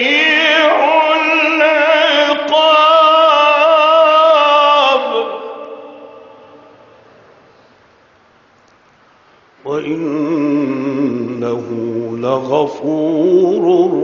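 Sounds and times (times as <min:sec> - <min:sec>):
man reciting melodically: 0:00.0 - 0:06.7, 0:09.6 - 0:14.0.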